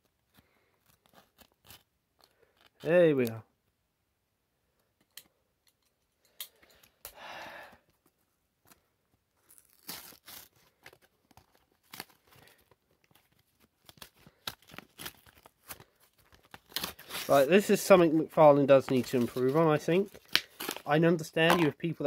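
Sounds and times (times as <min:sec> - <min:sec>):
plastic packaging crinkling and tearing: 0:00.8 - 0:03.0, 0:09.4 - 0:22.0.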